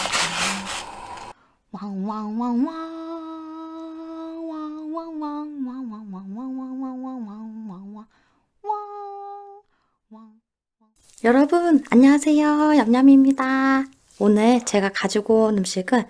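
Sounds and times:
woman humming: 8.6s - 10.4s.

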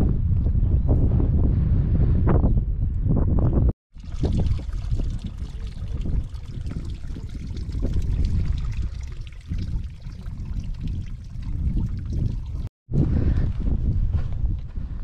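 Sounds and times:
wind buffeting microphone: 0.0s - 15.0s
stream trickling: 3.9s - 12.7s.

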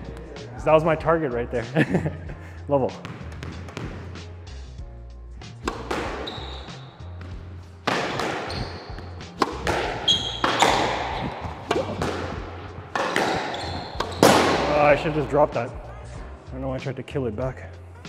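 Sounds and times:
squash ball hitting rackets and walls: 3.0s - 4.3s, 5.5s - 15.8s
shoes squeaking on court floor: 5.6s - 15.4s.

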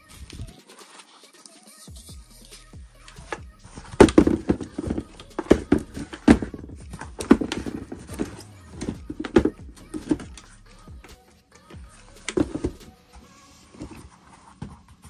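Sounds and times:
foam sneakers knocking together: 3.3s - 10.4s.

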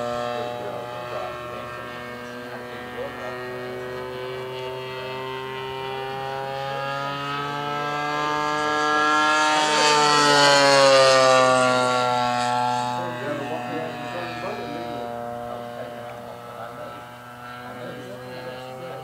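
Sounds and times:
model airplane engine flying past: 0.0s - 19.0s.

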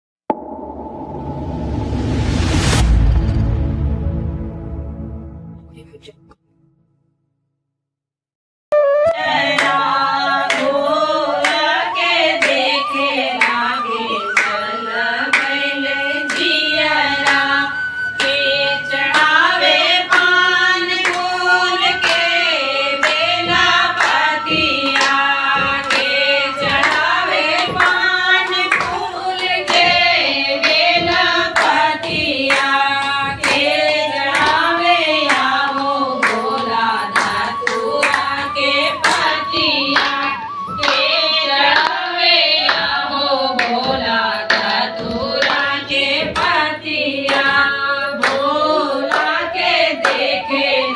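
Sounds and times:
hand clapping: 9.1s - 10.8s, 11.4s - 11.8s, 12.4s - 16.6s, 19.1s - 22.4s, 23.0s - 30.0s, 30.6s - 41.1s, 41.7s - 50.4s
women singing together: 9.2s - 50.9s.

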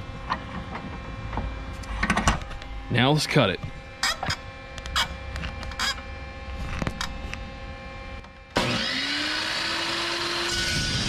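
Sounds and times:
chop saw motor whining: 8.5s - 11.0s.

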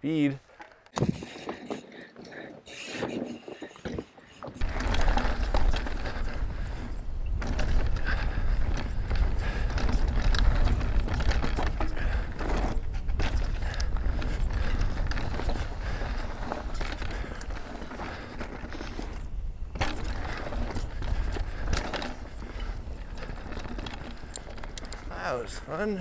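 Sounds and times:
wind buffeting microphone: 2.6s - 26.0s
bike rattling over dirt: 2.9s - 26.0s.

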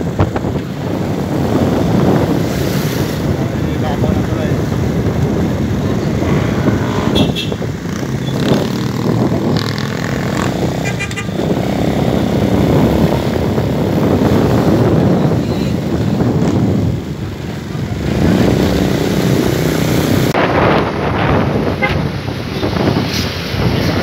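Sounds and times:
road noise: 0.0s - 24.0s
traffic: 0.0s - 24.0s.

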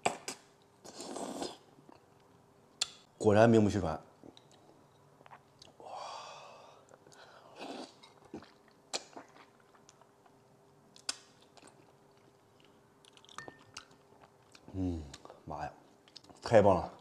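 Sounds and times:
person slurping food: 0.9s - 1.7s
faint chewing: 11.0s - 17.0s.

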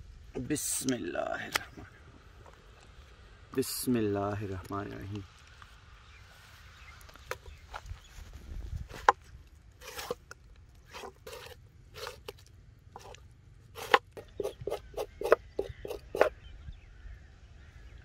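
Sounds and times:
knife scraping on cutting board: 9.8s - 10.2s, 10.9s - 12.4s, 13.8s - 16.3s.

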